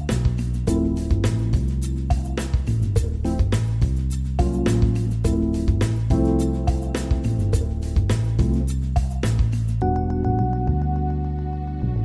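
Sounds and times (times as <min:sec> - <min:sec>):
instrumental music with beat: 0:00.0 - 0:12.0.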